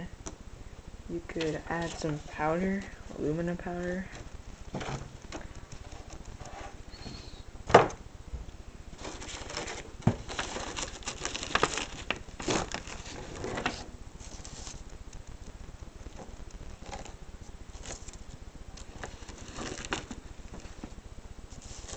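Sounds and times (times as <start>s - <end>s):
paper rustling: 9.0s - 14.9s, 16.2s - 21.9s.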